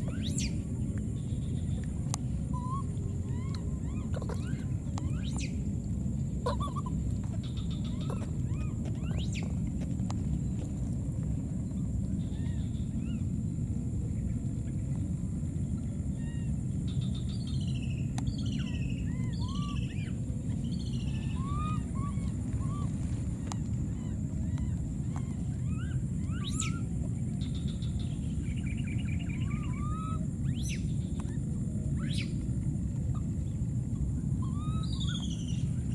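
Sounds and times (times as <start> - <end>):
low rumble: 0.0 - 35.9
high chirping calls: 6.4 - 9.6, 23.5 - 31.1.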